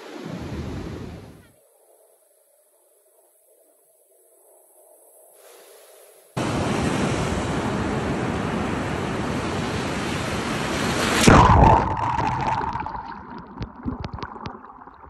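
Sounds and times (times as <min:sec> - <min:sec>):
wind: 0:00.0 - 0:11.9
waves washing up beach: 0:05.4 - 0:13.3.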